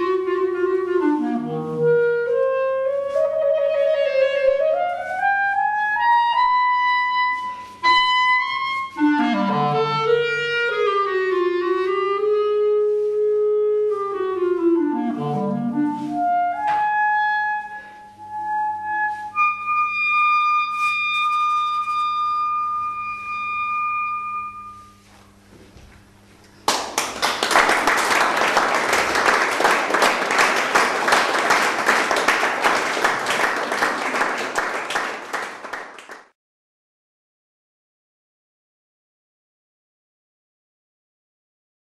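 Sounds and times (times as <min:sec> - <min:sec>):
solo clarinet: 0:00.0 - 0:25.3
audience applause: 0:26.6 - 0:36.3.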